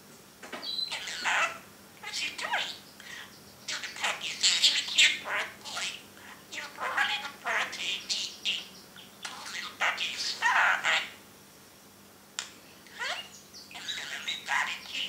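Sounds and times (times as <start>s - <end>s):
budgerigar chirping and warbling: 0.6s - 11.2s, 12.9s - 15.0s.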